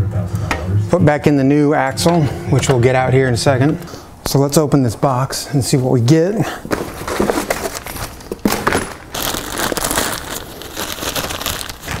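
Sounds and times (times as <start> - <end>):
packaging crinkling and tearing: 6.7 - 12.0.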